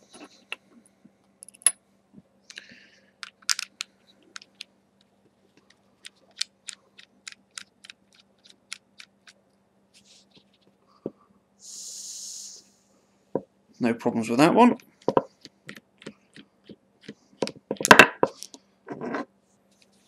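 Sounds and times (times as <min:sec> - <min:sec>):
short hiss: 0:11.6 - 0:12.8.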